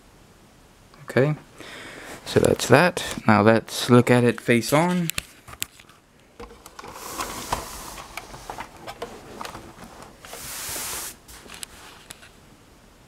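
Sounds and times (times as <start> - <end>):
short rustle: 6.9 - 12.4.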